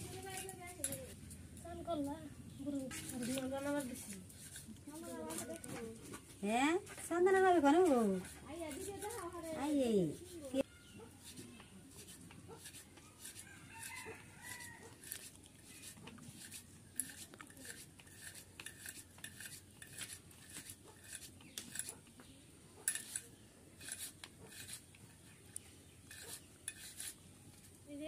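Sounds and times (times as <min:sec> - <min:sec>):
dough scraping on wooden board: 0:02.9 - 0:22.0, 0:22.9 - 0:25.0, 0:26.0 - 0:27.2.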